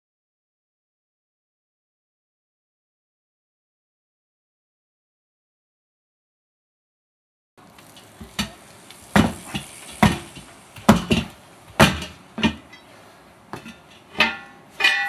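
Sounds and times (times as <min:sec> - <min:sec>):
tire bar clanking on metal rim: 0:07.7 - 0:15.0.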